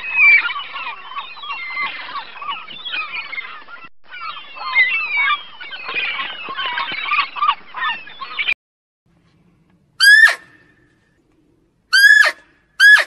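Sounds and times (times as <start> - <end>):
shrill animal calls sliding down: 10.0 - 10.5, 11.9 - 13.0
gulls calling: 10.0 - 10.8, 11.9 - 13.0.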